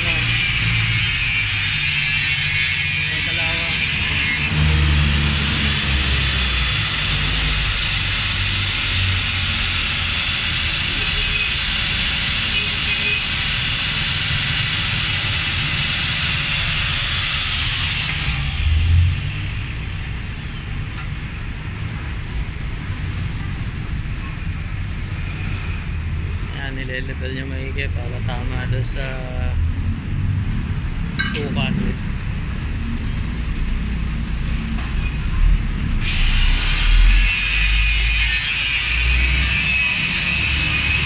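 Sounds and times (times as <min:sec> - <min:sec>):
angle grinder grinding metal pipe: 0:00.0 - 0:18.9, 0:36.0 - 0:41.0.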